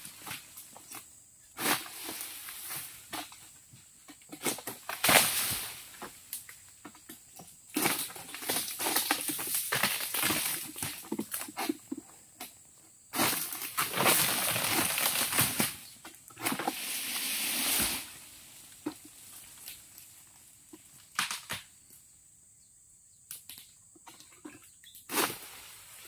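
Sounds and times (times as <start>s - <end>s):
dry fronds rustling and crunching: 4.3s - 6.6s, 7.7s - 11.5s, 13.2s - 21.6s
sharp snaps and crackles: 21.0s - 22.0s, 23.2s - 23.8s.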